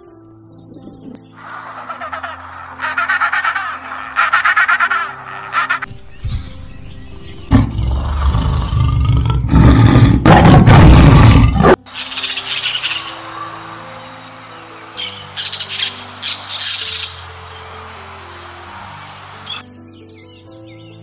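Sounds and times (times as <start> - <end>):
soft background music: 0.0 - 21.0
bird chirping: 0.3 - 8.5, 11.9 - 21.0
tiger roaring: 7.5 - 11.8.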